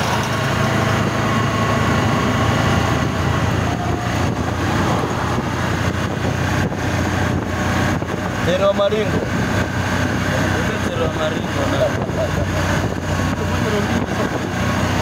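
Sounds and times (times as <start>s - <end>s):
tyre and wind noise: 0.0s - 10.2s
vehicle engine hum: 0.0s - 15.0s.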